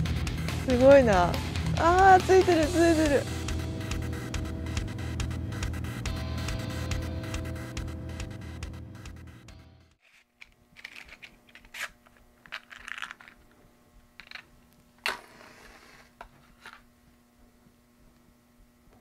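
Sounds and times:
objects being handled: 0:10.0 - 0:17.0
faint steady hum: 0:10.1 - 0:19.0.

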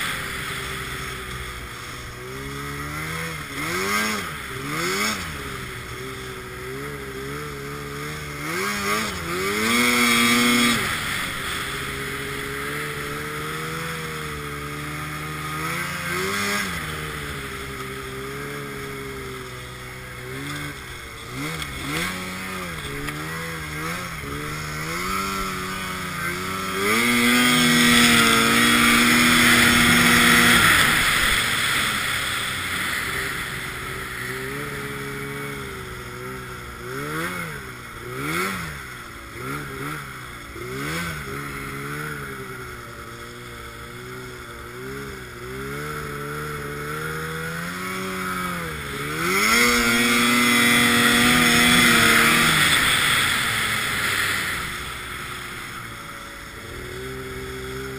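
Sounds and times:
snowmobile engine revving: 0:00.0 - 0:57.9.

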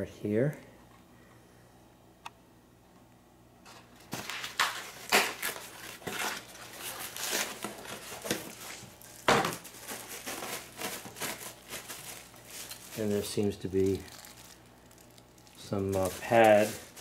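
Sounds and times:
plastic ripping: 0:04.0 - 0:17.0
plastic wrap crinkling: 0:04.0 - 0:17.0.

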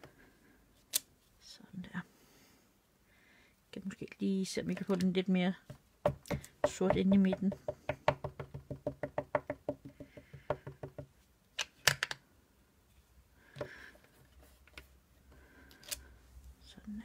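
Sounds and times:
rubber stamp tapping ink pad: 0:05.7 - 0:11.1
soft rustle: 0:13.9 - 0:17.0.

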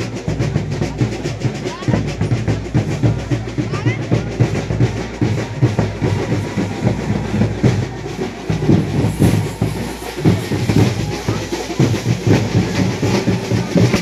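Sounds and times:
fast dense drumming: 0:00.0 - 0:14.0.

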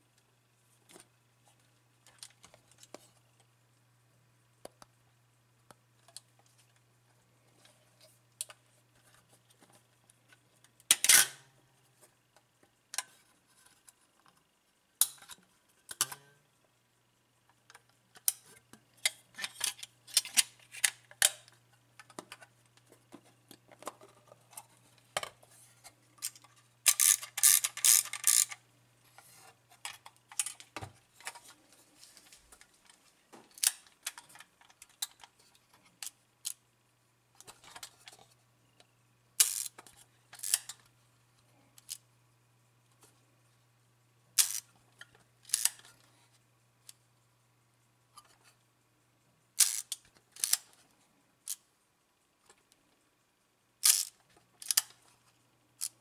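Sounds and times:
faint low hum: 0:00.0 - 0:56.0
camera mechanism clicks and rattles: 0:26.2 - 0:28.6, 0:45.5 - 0:45.9, 0:53.8 - 0:54.9.

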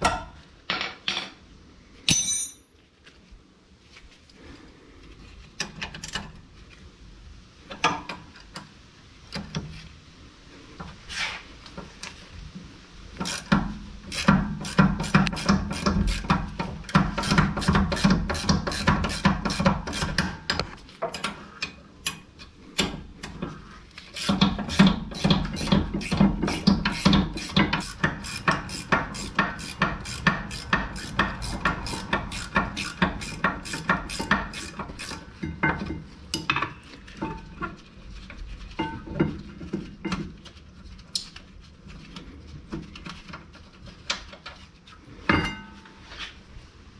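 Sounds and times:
hand ratchet clicking: 0:24.2 - 0:35.2.

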